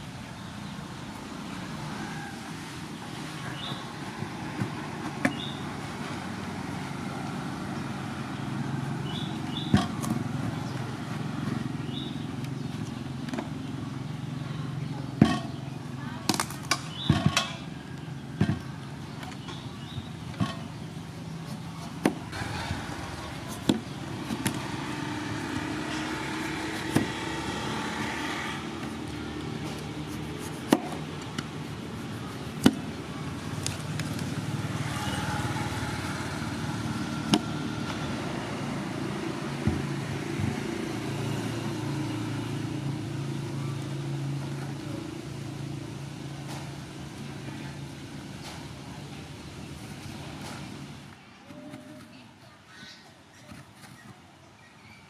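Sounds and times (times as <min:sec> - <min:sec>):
engine-like hum: 0:00.0 - 0:52.0
knife cutting pumpkin rind: 0:29.4 - 0:32.9.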